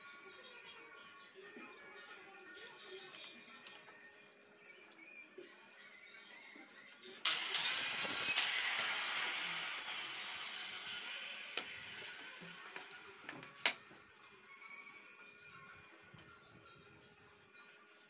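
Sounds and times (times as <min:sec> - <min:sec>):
power tool high whine: 0:07.3 - 0:13.7.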